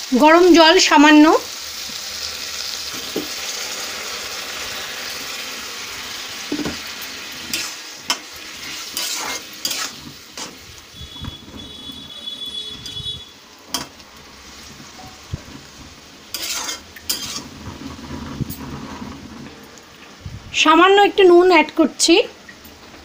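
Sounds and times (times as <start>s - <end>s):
faint sizzle of simmering pan: 0.0s - 20.3s
metal spatula scraping a pan: 6.5s - 13.0s, 13.7s - 19.6s.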